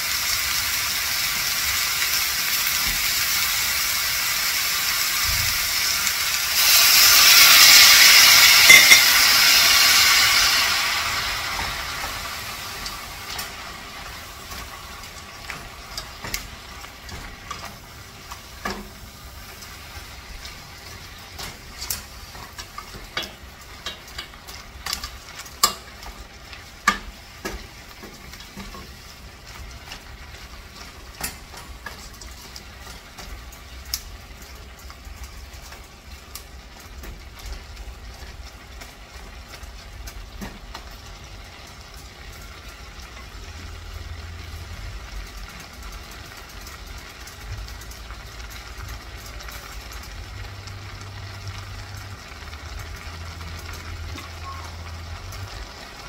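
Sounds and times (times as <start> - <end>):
food sizzling in a saucepan: 0.0 - 56.0.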